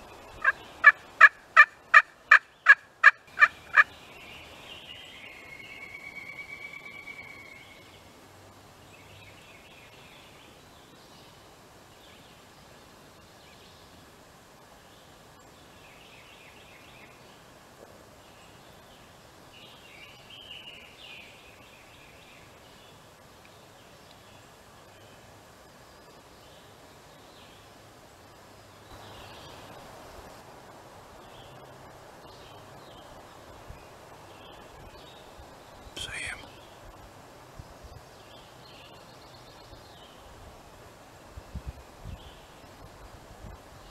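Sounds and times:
soft steady hiss: 0.0s - 43.9s
turkey gobbling: 0.4s - 3.9s
faint bird chirps: 35.8s - 36.8s.

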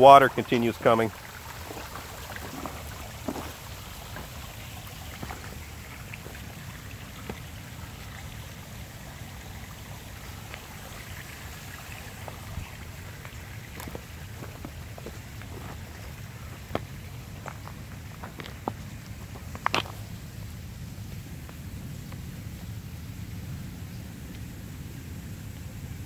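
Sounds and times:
water running over rocks: 0.0s - 26.0s
stones shifting underfoot: 1.6s - 6.6s, 12.2s - 20.2s.

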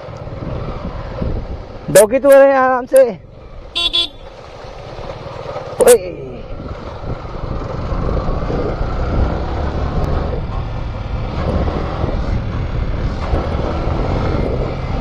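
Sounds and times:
wind on microphone: 0.2s - 1.9s, 6.5s - 15.0s
motorcycle engine running: 3.2s - 15.0s.

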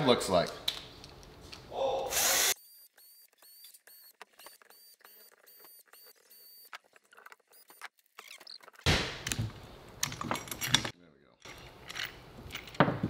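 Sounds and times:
cordless drill running: 2.1s - 2.7s.

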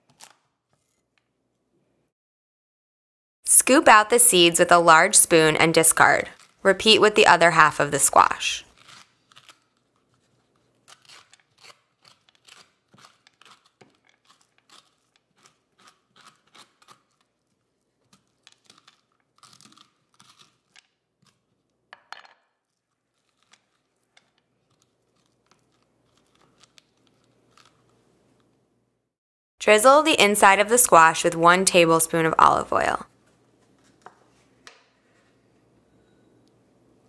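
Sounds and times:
spoon scraping squash pulp: 8.4s - 21.6s.

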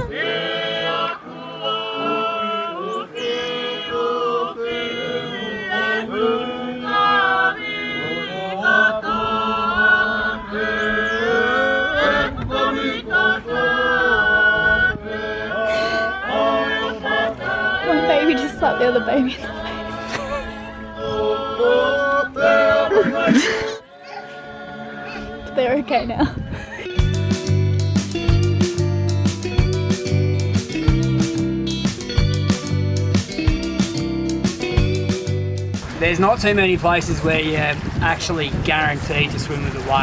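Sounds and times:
group singing in harmony: 0.0s - 26.5s.

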